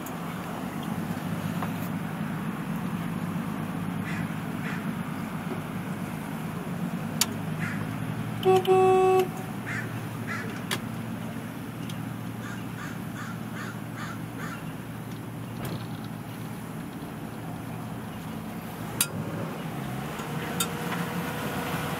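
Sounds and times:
boat engine running: 0.0s - 21.9s
repeated bird calls: 4.0s - 5.0s, 7.5s - 8.0s, 9.6s - 10.7s, 11.8s - 15.6s
loud horn blast: 8.4s - 9.6s.

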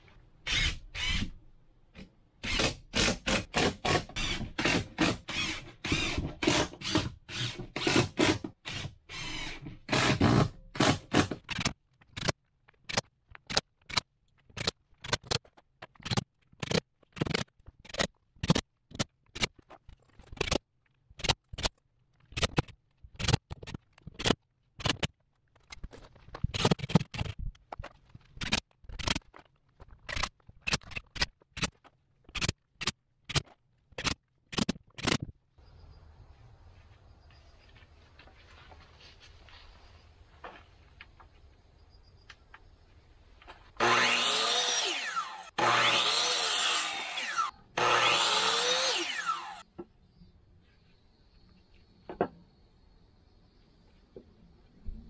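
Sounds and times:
sharp knocks and clicks fastening: 9.6s - 35.4s.

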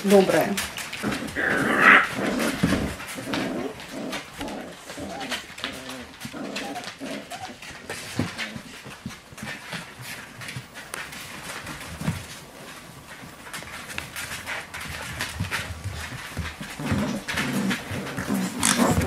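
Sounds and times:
puppies whining: 0.8s - 9.6s, 14.0s - 19.0s.

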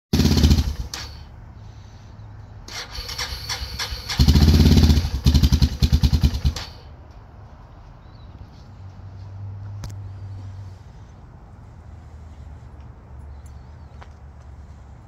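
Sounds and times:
atv engine idling and revving: 0.1s - 1.7s, 2.5s - 7.0s.

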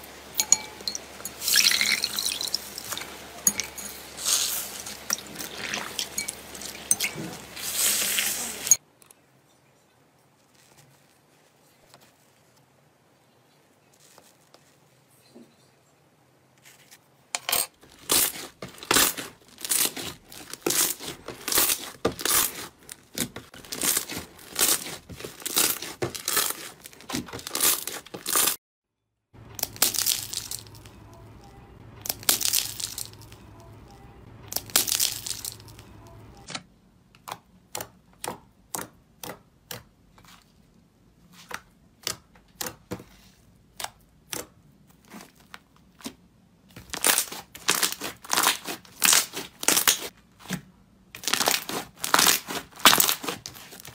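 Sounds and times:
slime coating crunching: 0.0s - 8.8s, 17.8s - 28.6s, 29.4s - 36.4s, 43.7s - 50.1s, 51.2s - 53.9s.

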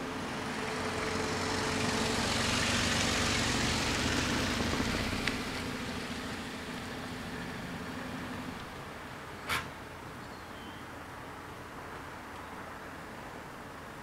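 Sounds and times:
car driving up and stopping: 0.0s - 8.8s.

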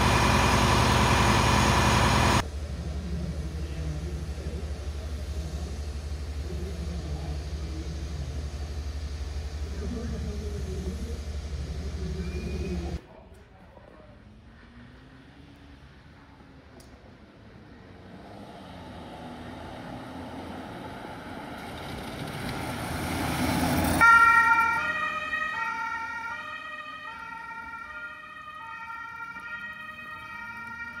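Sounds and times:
road noise: 0.0s - 31.0s
two-tone ambulance siren: 24.0s - 31.0s.

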